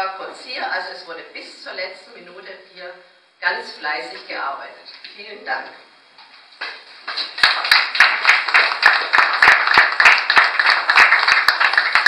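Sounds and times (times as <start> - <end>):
group of people clapping: 6.6 - 12.0
sharp close claps: 6.6 - 12.0.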